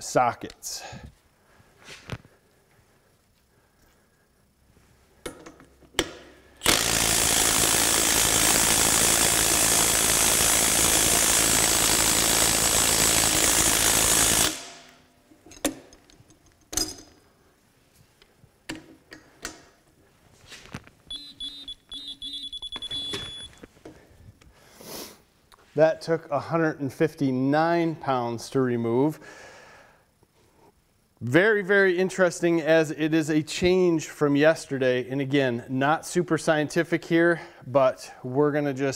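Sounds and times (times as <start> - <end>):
impact wrench hammering: 5.3 - 15.0
torque wrench beeping: 6.6 - 14.6, 21.1 - 23.6.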